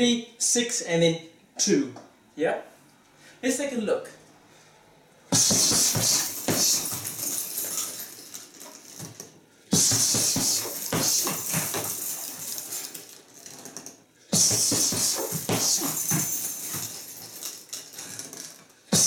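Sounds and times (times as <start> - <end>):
fists striking a punching bag: 5.3 - 7.5, 9.7 - 12.6, 14.3 - 17.4.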